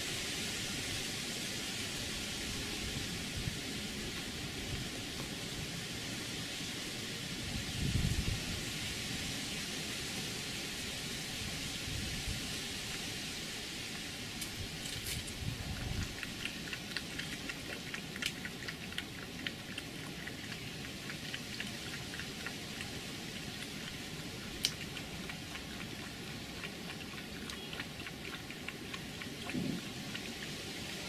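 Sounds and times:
steady hiss: 0.0s - 27.7s
fox chewing clicks and crunches: 13.9s - 31.0s.

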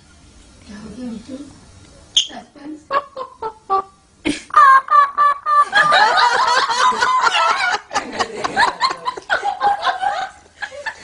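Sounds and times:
parakeet chattering: 2.2s - 3.9s.

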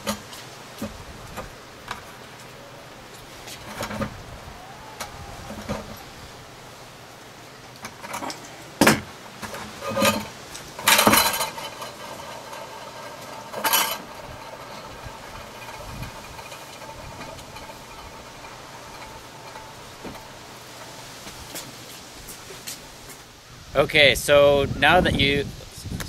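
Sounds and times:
metal rattling: 0.0s - 23.1s
metallic clinks and knocks: 7.8s - 21.8s.

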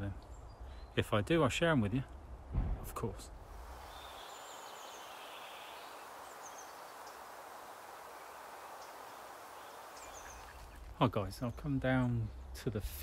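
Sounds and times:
outdoor background hiss: 0.0s - 13.0s
high bird chirps: 3.8s - 7.3s, 8.1s - 10.9s.

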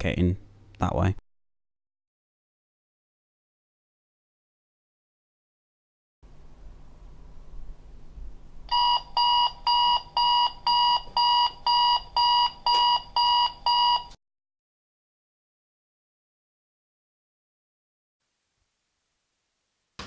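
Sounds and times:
alarm clock beeping: 8.7s - 14.1s.

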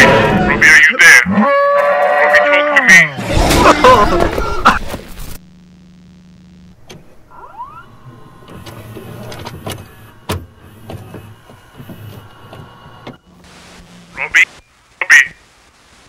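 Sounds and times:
signal crackles and clicks: 4.3s - 16.0s
low electrical hum: 5.0s - 16.0s
rising whine: 5.5s - 13.4s.

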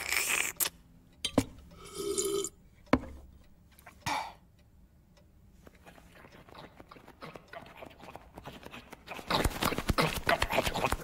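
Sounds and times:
quick tapping: 8.1s - 11.0s.

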